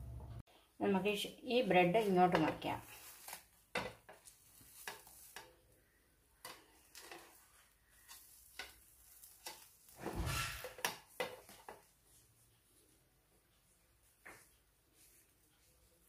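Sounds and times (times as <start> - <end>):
spatula scraping frying pan: 2.4 - 5.6, 6.4 - 11.8.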